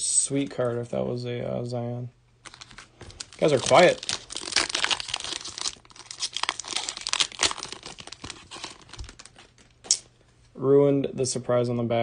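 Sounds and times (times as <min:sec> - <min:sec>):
foil wrapper tearing and crinkling: 0:02.4 - 0:10.0.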